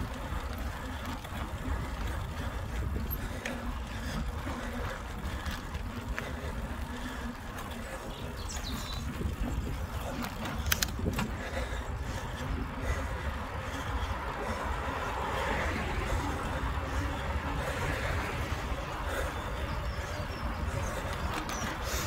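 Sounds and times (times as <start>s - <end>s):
bike tyres rolling: 0.0s - 22.0s
wind buffeting microphone: 0.0s - 22.0s
sharp clicks: 10.1s - 11.4s.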